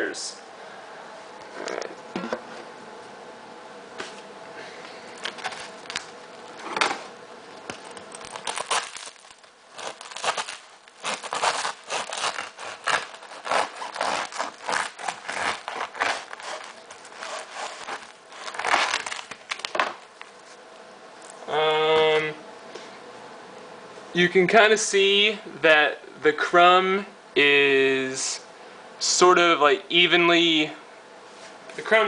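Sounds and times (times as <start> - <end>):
bread knife sawing crusty loaf: 9.8 - 19.0.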